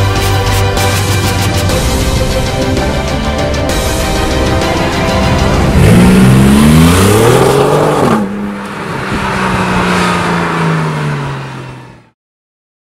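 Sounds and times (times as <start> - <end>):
car engine accelerating hard: 4.2 - 12.2.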